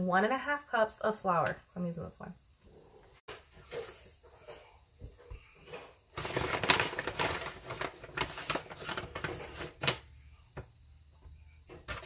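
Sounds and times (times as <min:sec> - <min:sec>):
paper bag rustling: 0:06.1 - 0:10.1.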